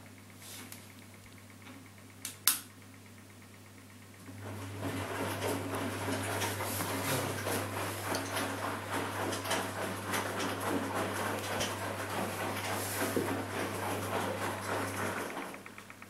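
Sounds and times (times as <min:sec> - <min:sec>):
washing machine motor hum: 0:00.0 - 0:16.0
laundry and water sloshing: 0:04.4 - 0:15.4.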